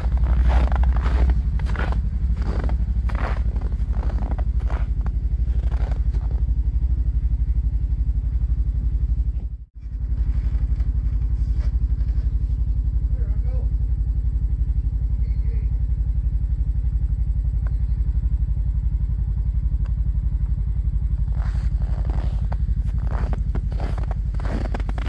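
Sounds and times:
footsteps crunching in snow: 0:00.0 - 0:06.5, 0:21.3 - 0:25.0
engine idling: 0:00.0 - 0:25.0.

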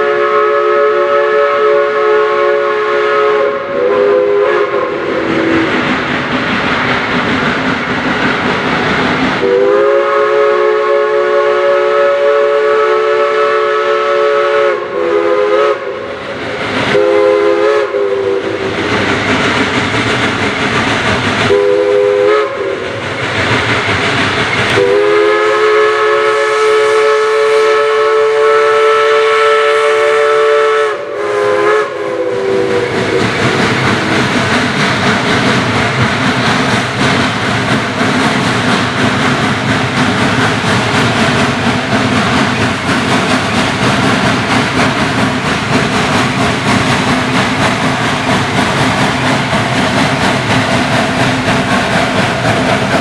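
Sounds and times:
steam whistle chord: 0:00.0 - 0:05.7, 0:09.4 - 0:16.2, 0:16.9 - 0:18.8, 0:21.5 - 0:22.9, 0:24.8 - 0:33.3
steam locomotive working: 0:00.0 - 0:53.0.

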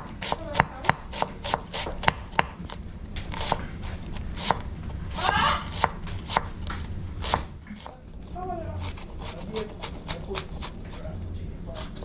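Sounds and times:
knife scraping board: 0:00.0 - 0:06.5, 0:08.7 - 0:11.1, 0:11.7 - 0:12.0
knife chopping on wooden board: 0:00.0 - 0:08.0.

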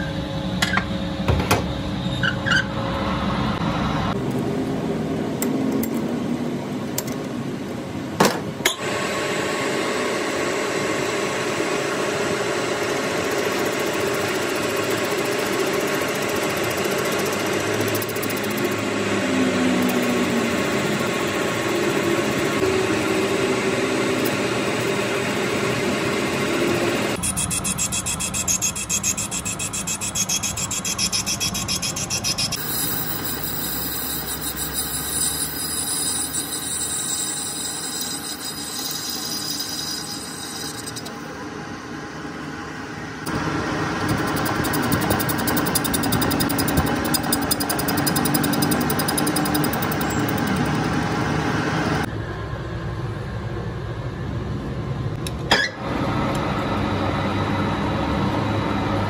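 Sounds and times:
metal lathe cutting hiss: 0:32.6 - 0:41.2.

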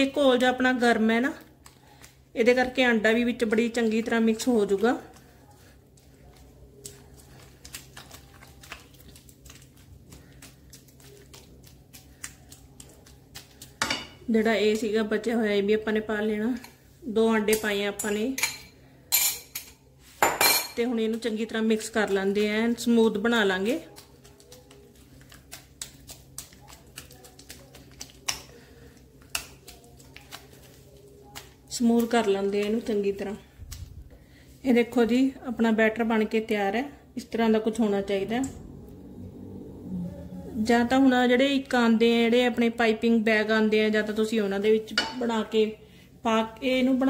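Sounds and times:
spatula stirring sticky dough: 0:00.0 - 0:19.0, 0:20.8 - 0:36.5.

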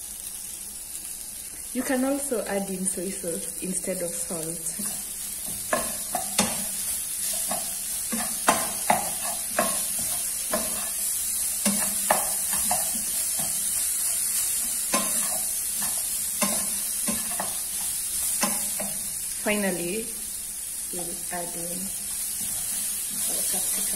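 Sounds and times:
vegetables sizzling in oil: 0:00.0 - 0:23.9
spatula scraping a pan: 0:04.8 - 0:19.0, 0:22.2 - 0:23.9.

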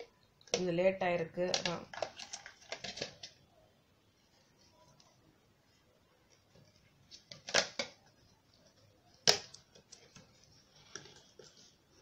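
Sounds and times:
plastic parts clicking and knocking: 0:01.4 - 0:03.4, 0:06.3 - 0:11.7.

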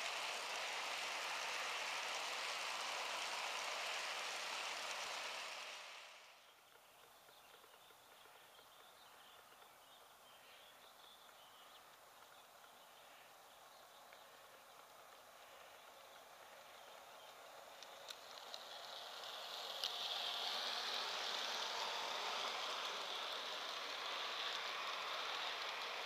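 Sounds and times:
model train cars rolling on track: 0:00.0 - 0:26.0
light chirps: 0:06.4 - 0:21.0.

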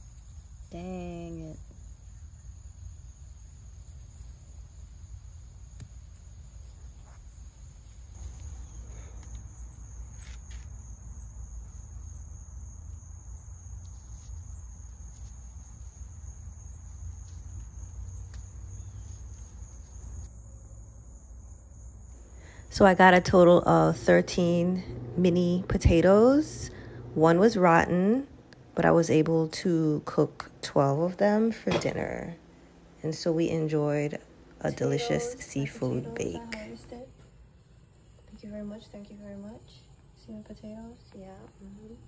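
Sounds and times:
insects trilling: 0:00.0 - 0:42.0
low rumble: 0:20.2 - 0:37.1.

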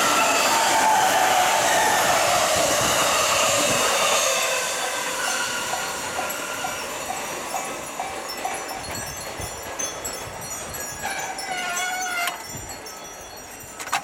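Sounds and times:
electric train passing: 0:00.0 - 0:13.9
level crossing bell ringing: 0:06.2 - 0:14.0.

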